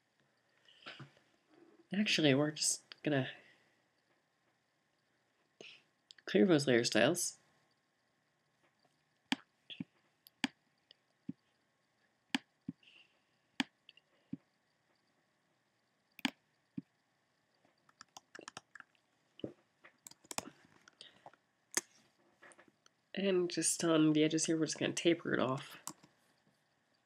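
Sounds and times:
computer mouse clicking: 16.2 - 16.9, 17.8 - 18.9, 19.9 - 21.0, 25.8 - 26.2.

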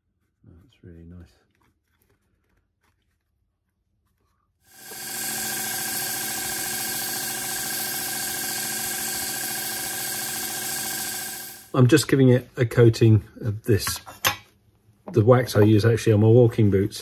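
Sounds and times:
belt sander running: 4.7 - 11.7.

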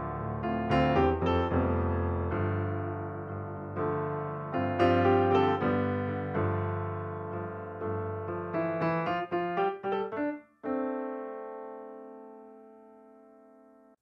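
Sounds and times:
slow piano music: 0.0 - 14.0.

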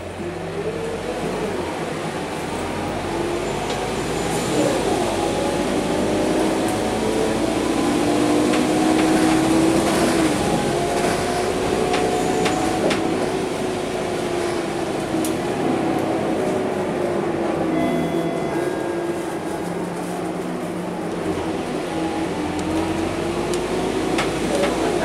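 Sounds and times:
bus engine drone: 0.0 - 25.0
interior rattles and clicks: 8.4 - 13.3, 22.6 - 25.0.

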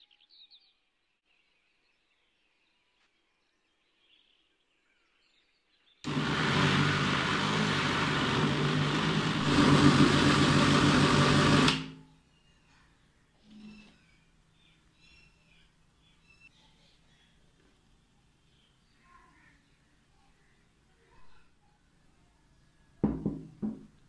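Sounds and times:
food processor blending: 6.1 - 12.0.

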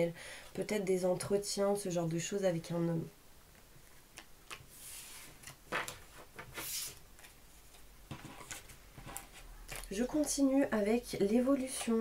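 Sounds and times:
cards sliding together: 4.2 - 7.3.

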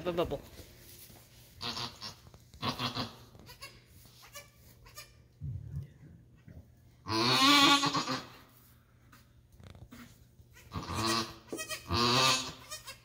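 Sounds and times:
goat bleating: 1.6 - 5.2, 7.1 - 8.4, 10.5 - 13.0.

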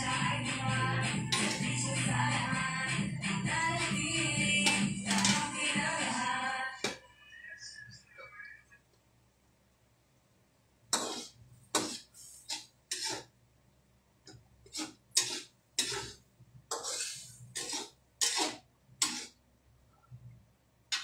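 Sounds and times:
utensils and dishes clattering: 1.3 - 1.8, 4.6 - 5.7.

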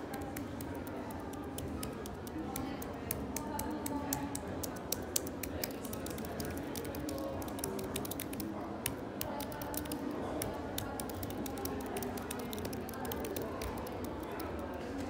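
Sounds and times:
keyboard keys clicking: 0.0 - 14.8.

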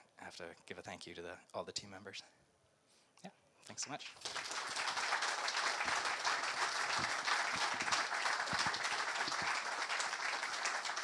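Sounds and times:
audience applause: 4.2 - 11.0.

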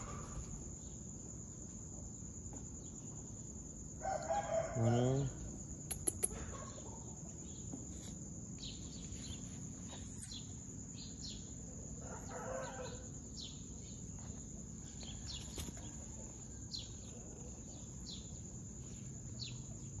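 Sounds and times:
high-pitched insect drone: 2.8 - 6.4.

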